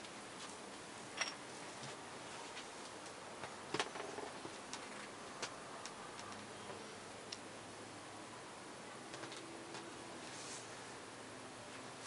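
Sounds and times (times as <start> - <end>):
faint outdoor hiss: 0.0 - 12.0.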